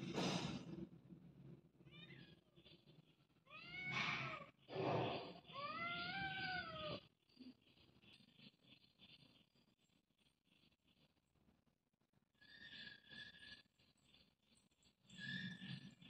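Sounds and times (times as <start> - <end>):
cat meowing: 1.9 - 2.4, 3.5 - 4.5, 5.4 - 7.1
cat chirp: 3.5 - 4.5, 5.5 - 7.0.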